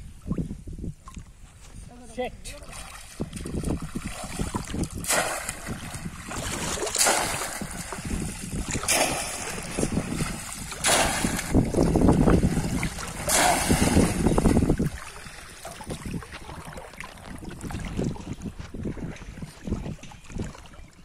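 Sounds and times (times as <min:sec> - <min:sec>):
water churning: 0:02.5 - 0:21.0
fish trap splashing into water: 0:04.0 - 0:15.9.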